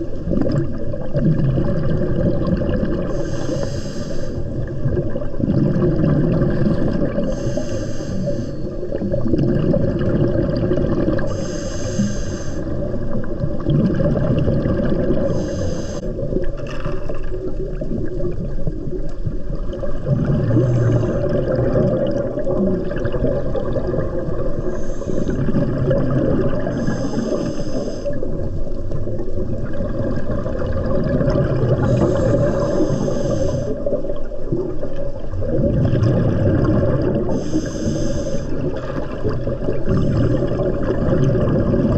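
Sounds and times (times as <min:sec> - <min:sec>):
exhaled bubbles rumbling: 0:00.0 - 0:41.9
regulator inhale hiss: 0:03.1 - 0:04.7, 0:06.7 - 0:09.0, 0:11.2 - 0:12.8, 0:15.3 - 0:16.2, 0:20.6 - 0:21.3, 0:24.6 - 0:25.5, 0:26.7 - 0:28.5, 0:31.8 - 0:34.0, 0:37.3 - 0:39.2.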